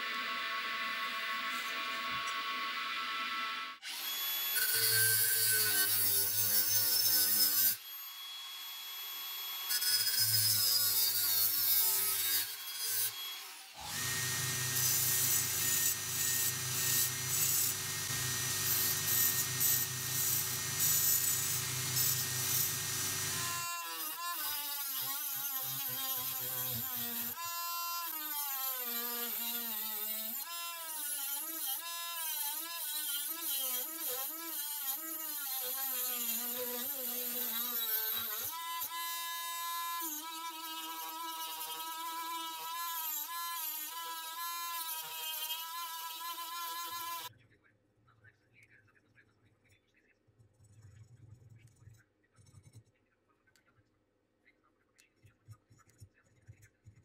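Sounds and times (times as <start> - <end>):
rotary tool high motor whine: 0.0 - 5.3, 7.0 - 10.8, 12.7 - 23.7
grinder cutting copper tube: 0.0 - 47.3.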